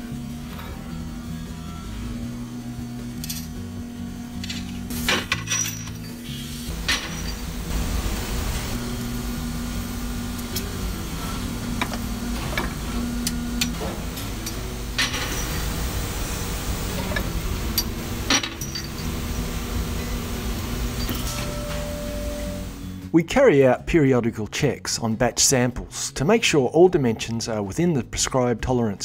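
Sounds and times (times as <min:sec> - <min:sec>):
workshop machinery humming: 0:00.0 - 0:23.3
metallic clinks and knocks: 0:04.4 - 0:07.5.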